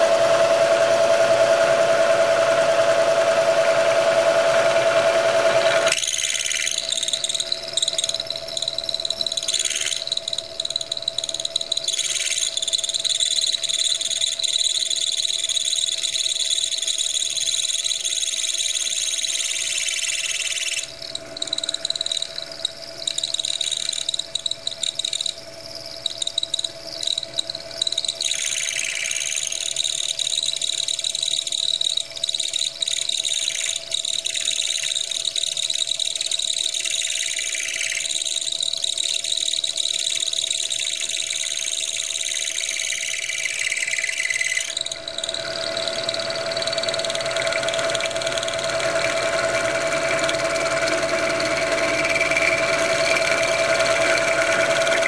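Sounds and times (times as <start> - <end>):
milling machine cutting metal: 44.6 - 55.0.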